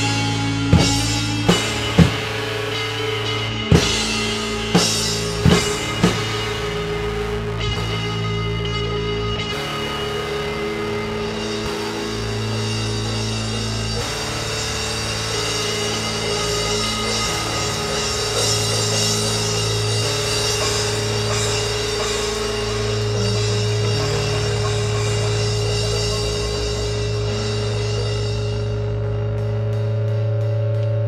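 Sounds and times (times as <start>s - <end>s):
drums and cymbals: 0.0s - 31.0s
low sustained droning tones: 0.0s - 31.0s.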